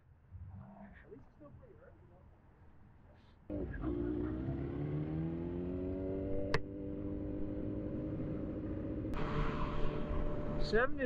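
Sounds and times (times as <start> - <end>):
motorcycle engine accelerating: 3.5 - 11.0.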